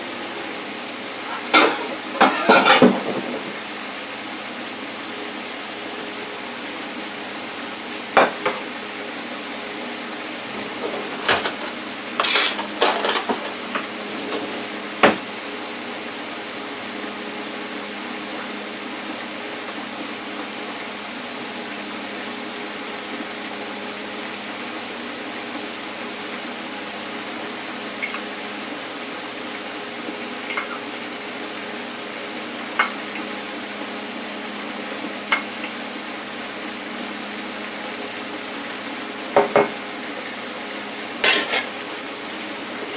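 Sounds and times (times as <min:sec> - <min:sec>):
oil bubbling and sizzling: 0:00.0 - 0:42.9
dishes and utensils clattering: 0:01.3 - 0:03.4, 0:10.7 - 0:13.6, 0:30.5 - 0:30.8, 0:41.2 - 0:41.7.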